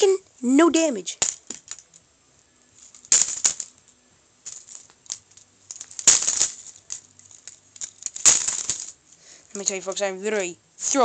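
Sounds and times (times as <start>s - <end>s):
plastic toy pieces clattering: 1.2s - 2.0s, 2.8s - 10.2s.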